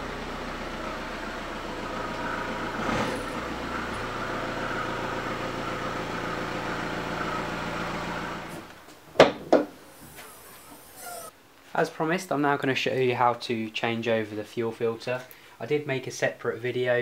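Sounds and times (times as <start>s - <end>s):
diesel engine running: 0.0s - 8.8s.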